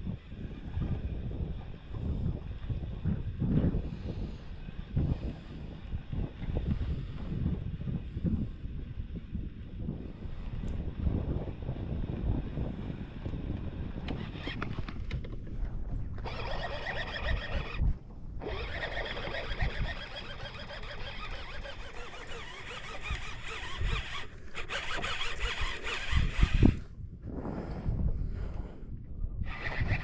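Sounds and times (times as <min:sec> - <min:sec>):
wind buffeting microphone: 0:00.0 - 0:30.0
fishing reel gears whirring: 0:13.5 - 0:14.7, 0:16.2 - 0:26.9, 0:29.4 - 0:30.0.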